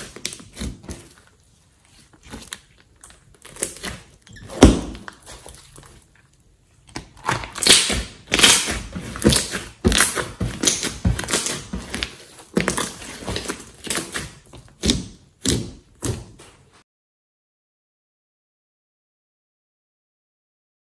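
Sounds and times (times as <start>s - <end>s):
slime popping and squelching: 0.0s - 6.1s, 6.8s - 16.4s.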